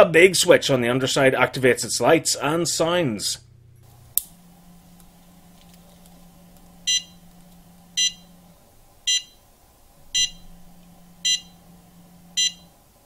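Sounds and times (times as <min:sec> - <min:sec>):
short high electronic beeps: 0:10.2 - 0:10.5, 0:11.2 - 0:11.6, 0:12.4 - 0:12.7.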